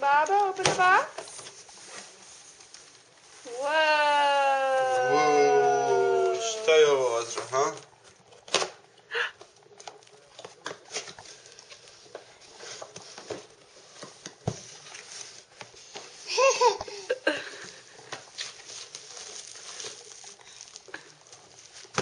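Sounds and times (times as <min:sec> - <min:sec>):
cardboard packaging rustling: 0:17.6 - 0:22.0.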